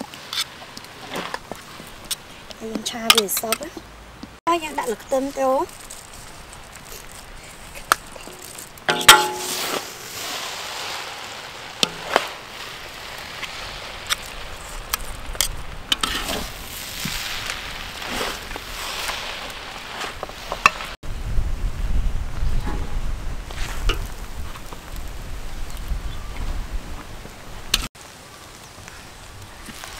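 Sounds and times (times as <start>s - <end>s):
light sizzle: 4.4s - 29.9s
metal spatula scraping a wok: 8.2s - 16.6s
ringing metal clank: 8.9s - 10.1s.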